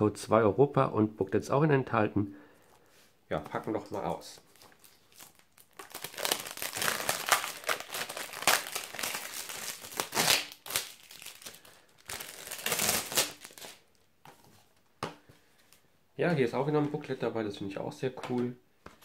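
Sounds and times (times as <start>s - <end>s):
plastic wrap crinkling: 3.5s - 14.1s.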